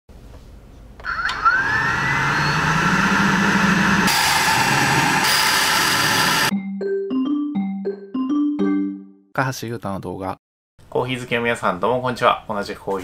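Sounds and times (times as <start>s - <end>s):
coffee roaster motor whine: 1.0s - 6.5s
hiss: 3.1s - 6.5s
mallet percussion music: 6.5s - 9.2s.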